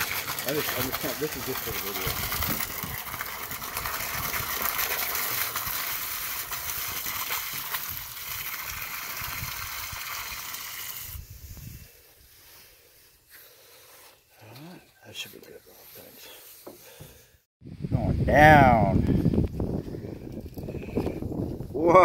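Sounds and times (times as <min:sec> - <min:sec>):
water jet churning and splashing: 0:00.0 - 0:11.2.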